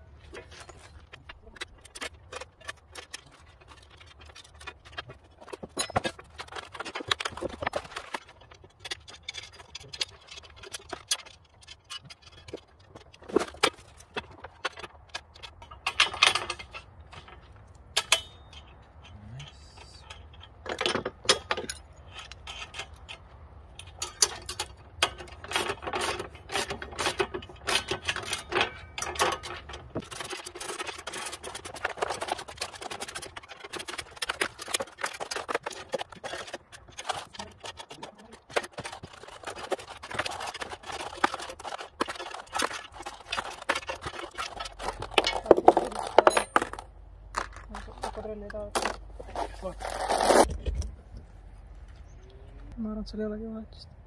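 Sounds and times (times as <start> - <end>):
metal hardware clinking: 0.4 - 49.5.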